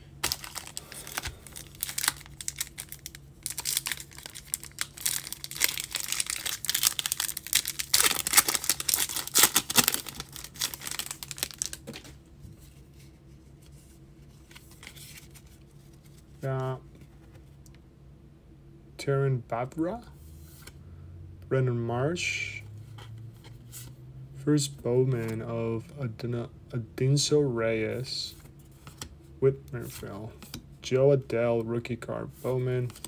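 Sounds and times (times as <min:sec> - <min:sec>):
foil wrapper tearing and crinkling: 0:00.2 - 0:12.0.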